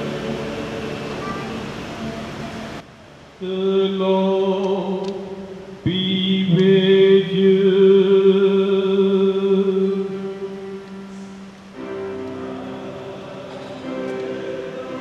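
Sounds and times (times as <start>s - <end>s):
church choir singing: 0.0s - 2.8s, 3.6s - 15.0s.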